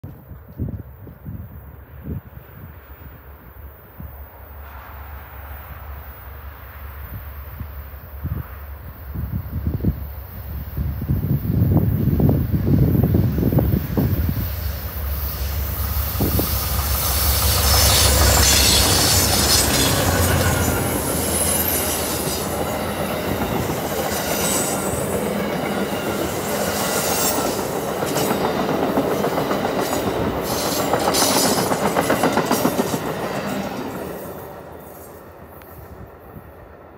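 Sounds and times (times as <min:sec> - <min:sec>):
train wheels clattering: 0:14.0 - 0:34.2.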